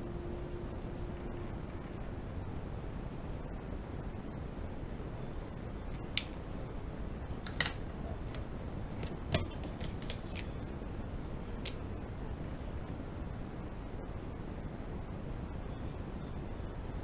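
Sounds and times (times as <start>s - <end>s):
low background hiss: 0.0s - 17.0s
drawing tools clicking on a desk: 9.0s - 10.5s.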